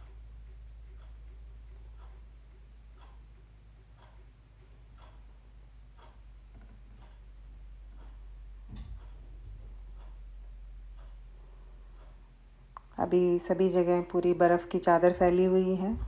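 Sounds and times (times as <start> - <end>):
faint clicks: 0.0 - 7.3, 7.9 - 13.0.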